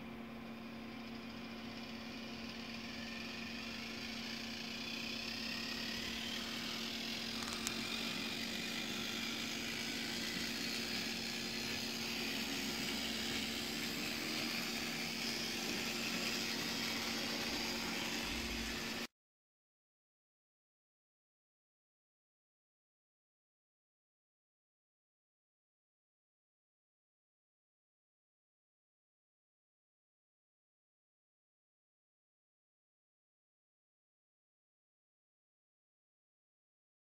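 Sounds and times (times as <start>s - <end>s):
model railway running hum: 0.0s - 19.1s.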